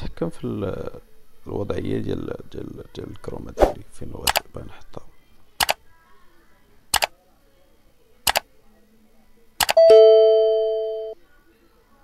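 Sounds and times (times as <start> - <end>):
mouse clicks: 5.6 - 5.8, 6.9 - 7.1, 8.3 - 8.5.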